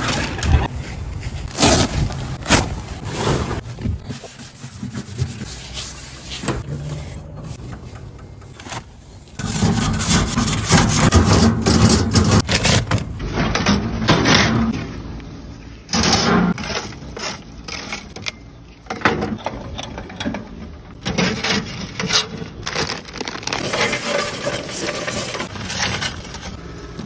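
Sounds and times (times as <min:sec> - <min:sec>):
grill brush scraping metal grate: 0:09.4 - 0:14.8, 0:23.6 - 0:26.6.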